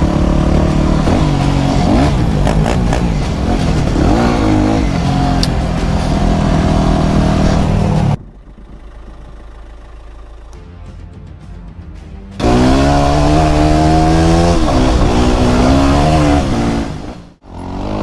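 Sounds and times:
motorcycle engine revving: 0:00.0 - 0:08.2, 0:12.4 - 0:18.0.

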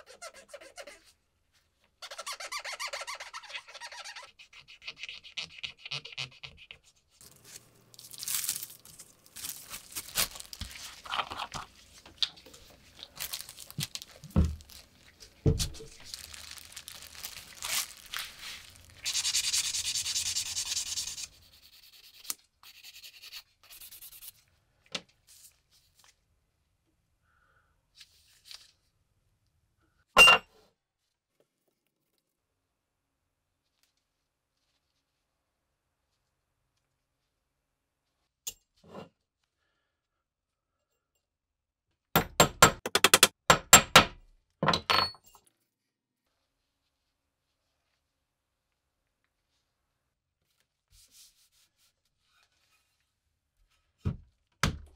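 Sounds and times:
scratchy rubbing: 0:00.0 - 0:01.1, 0:02.0 - 0:07.6, 0:18.1 - 0:24.4
plastic bag crinkling: 0:07.2 - 0:19.0.

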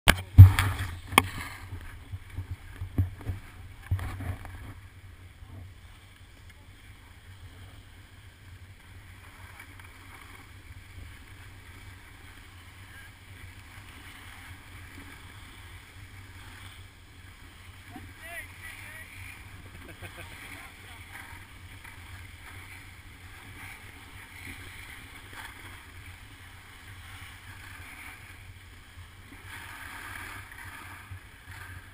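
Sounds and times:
muffled wind rumble: 0:00.1 - 0:31.9
skis sliding on snow: 0:00.2 - 0:31.9.

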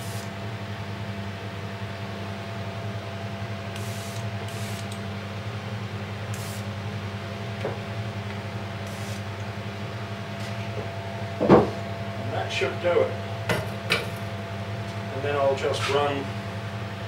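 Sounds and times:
spray gun hissing: 0:00.0 - 0:00.3, 0:03.8 - 0:05.0, 0:06.3 - 0:06.7, 0:08.9 - 0:09.2
machine hum: 0:00.0 - 0:15.6.

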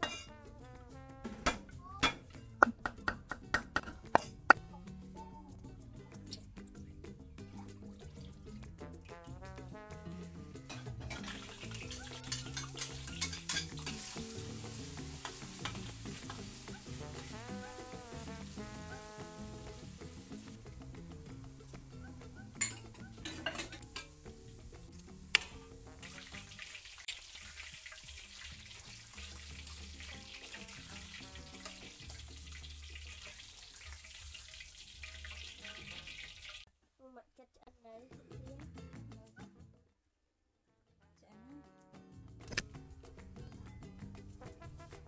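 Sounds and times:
spatula clinking on wok: 0:00.0 - 0:00.4, 0:10.7 - 0:16.8, 0:22.6 - 0:24.2
soft background music: 0:00.0 - 0:26.8, 0:27.5 - 0:33.6
garlic sizzling in hot oil: 0:09.1 - 0:36.7.

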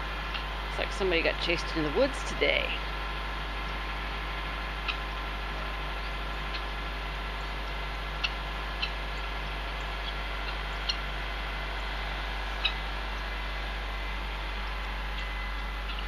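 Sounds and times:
young peafowl peeping: 0:03.6 - 0:16.0.

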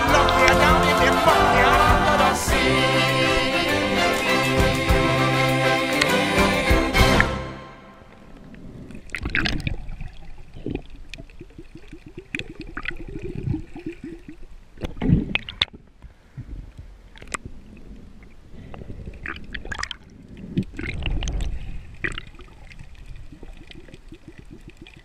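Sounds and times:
underwater water bubbling: 0:08.1 - 0:25.0.

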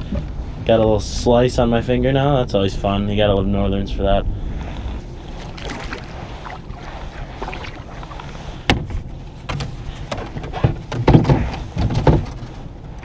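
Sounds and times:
low steady rumble: 0:00.0 - 0:13.0
thumps: 0:08.7 - 0:12.6
gear knocking against kayak: 0:08.7 - 0:13.0.

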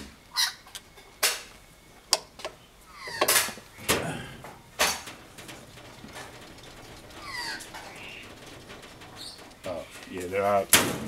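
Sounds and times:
metallic clicks and clanks: 0:03.2 - 0:11.0.

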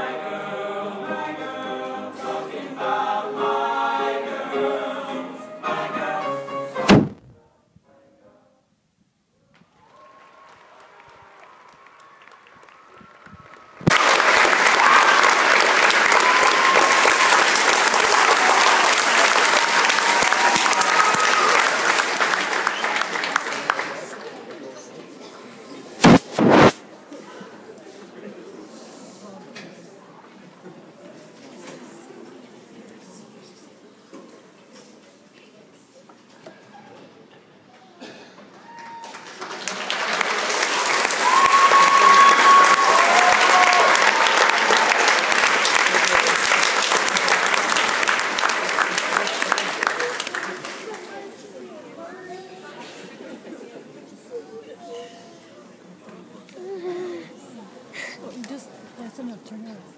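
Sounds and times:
audience applause: 0:09.7 - 0:24.7, 0:38.5 - 0:51.3.

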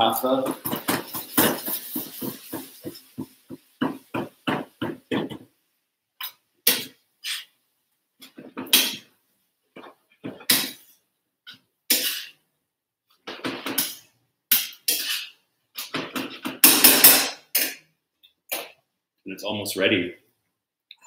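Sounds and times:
utensil clanking in frying pan: 0:00.4 - 0:05.4.

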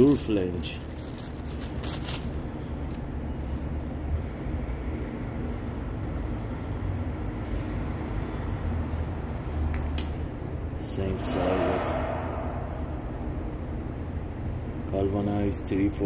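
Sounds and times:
steady low rumble: 0:00.0 - 0:15.6
plastic bag crinkling: 0:00.4 - 0:03.0.

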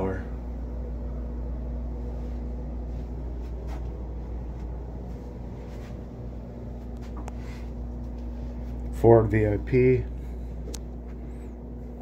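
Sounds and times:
machinery humming: 0:00.0 - 0:12.0.

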